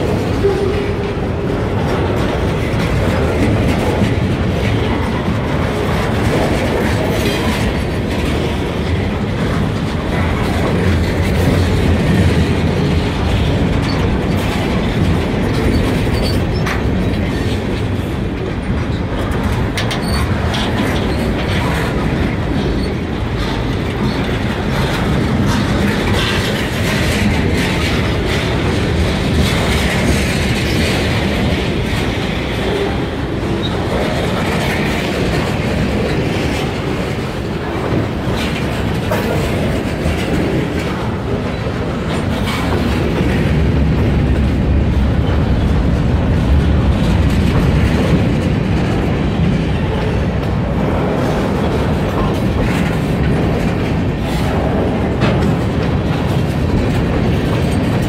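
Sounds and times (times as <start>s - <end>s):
steel wheels rumbling on rail: 0.0s - 58.0s.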